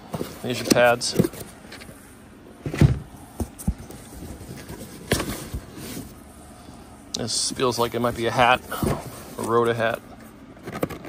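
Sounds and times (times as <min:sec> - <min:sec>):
cardboard boxes thumping: 0:02.6 - 0:05.8.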